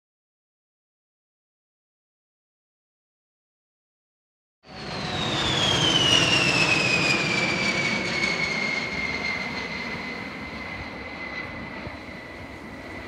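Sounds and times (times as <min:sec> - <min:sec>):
jet bomber passing overhead: 0:04.6 - 0:13.0.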